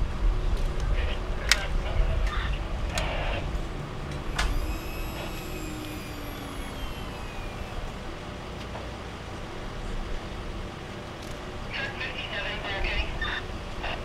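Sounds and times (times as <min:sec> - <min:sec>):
steady low rumble: 0:00.0 - 0:14.0
lift motor whining: 0:02.9 - 0:08.8.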